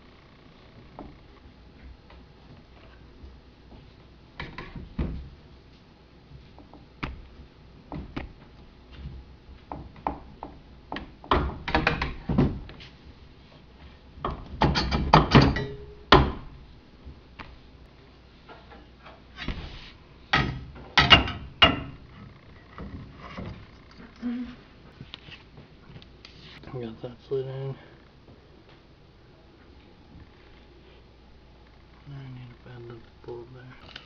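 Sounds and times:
knocks and clicks of frame parts: 0:09.7 - 0:12.8, 0:14.2 - 0:16.6, 0:20.3 - 0:22.0.

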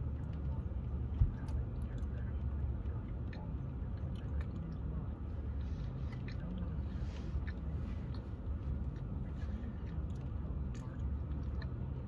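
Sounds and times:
people chewing: 0:05.5 - 0:12.0.

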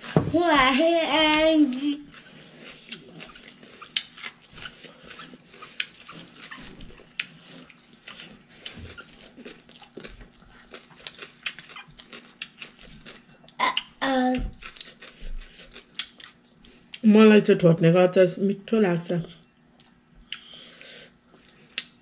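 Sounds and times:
faint steady hum: 0:00.0 - 0:22.0
chewing and lip smacking: 0:02.1 - 0:17.0, 0:19.7 - 0:20.5, 0:21.3 - 0:22.0.

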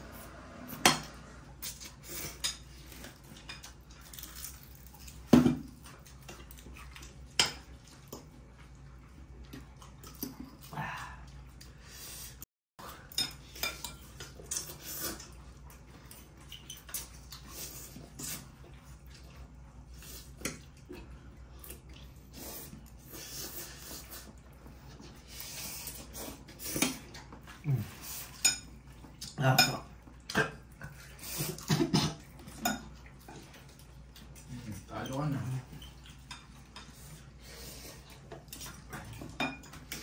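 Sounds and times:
cutlery clinking on ceramic bowls: 0:29.3 - 0:30.5, 0:32.0 - 0:33.0, 0:39.1 - 0:40.0.

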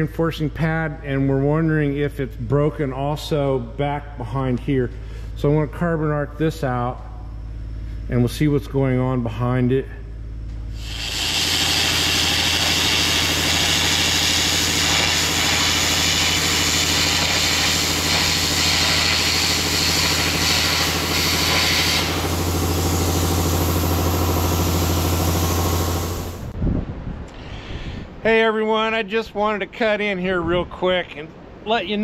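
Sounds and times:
engine hum: 0:09.3 - 0:26.6
air carbon arc gouging roar: 0:10.4 - 0:26.6.

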